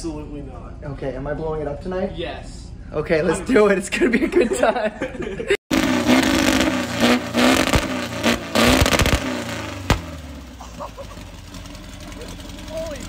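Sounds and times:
car engine revving: 5.7s - 13.0s
exhaust pops and cracks: 6.5s - 13.0s.

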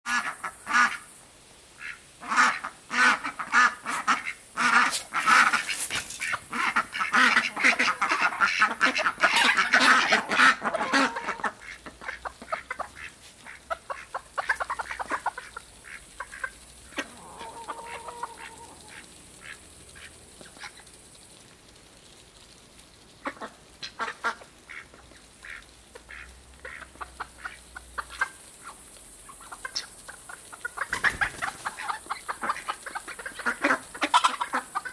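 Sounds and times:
ducks quacking: 0.1s - 1.1s, 1.8s - 20.9s, 23.2s - 34.9s
bills pecking grain clicks: 11.5s - 34.9s.

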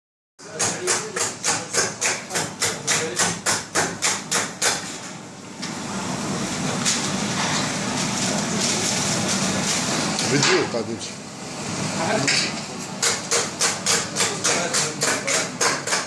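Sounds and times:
knives chopping rapidly: 0.4s - 4.8s, 13.0s - 16.0s.

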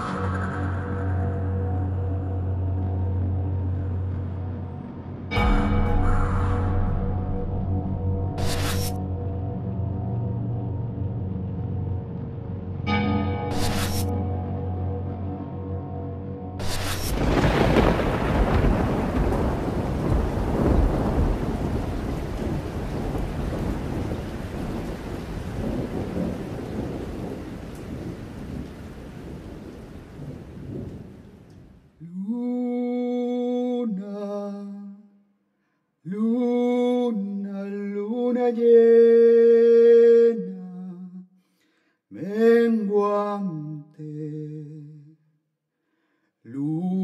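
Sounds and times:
rain hiss: 16.6s - 31.9s
thunder rumbling: 16.6s - 32.0s
man singing long notes: 32.0s - 35.1s, 36.1s - 41.3s, 42.1s - 45.3s, 46.5s - 47.0s.

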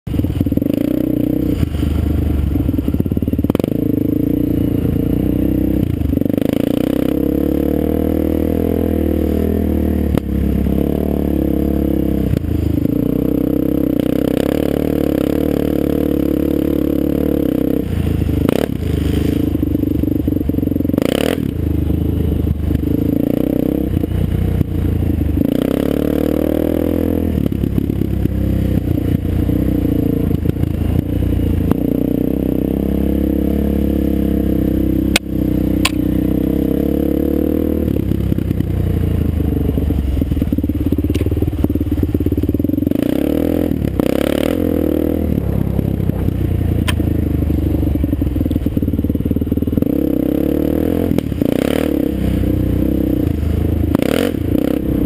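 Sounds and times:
quad bike engine revving: 0.1s - 55.0s
clatter over rough ground: 40.2s - 43.0s, 45.3s - 49.9s.

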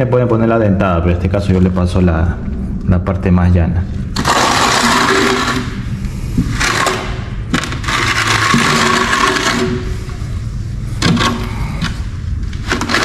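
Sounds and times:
trowel scraping adhesive on tile: 4.2s - 5.7s, 6.4s - 10.2s.

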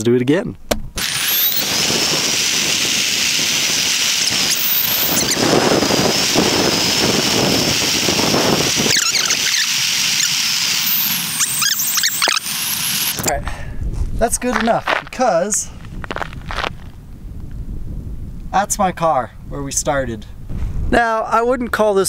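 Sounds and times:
electric motor whining: 0.9s - 13.4s
wheels rushing on rough asphalt: 1.0s - 13.4s, 14.1s - 17.0s.

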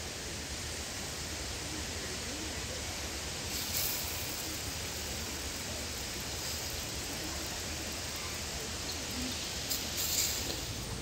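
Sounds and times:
bread sizzling in hot oil: 3.5s - 11.0s.

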